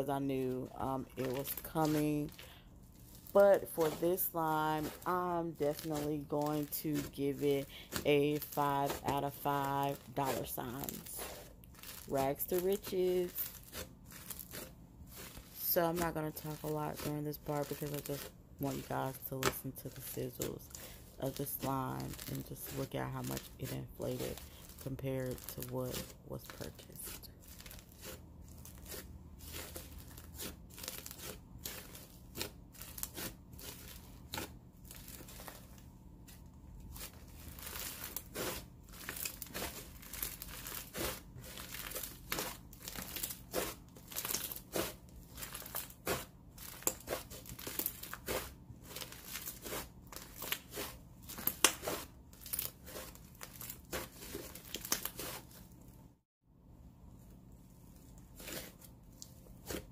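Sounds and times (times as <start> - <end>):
slime crackling and popping: 4.8 - 5.1, 7.9 - 9.1, 9.9 - 16.0, 16.6 - 17.1, 36.9 - 55.4.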